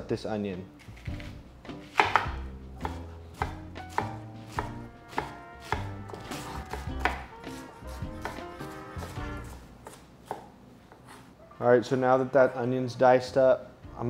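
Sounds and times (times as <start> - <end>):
knife chopping on wooden board: 1.0 - 11.2.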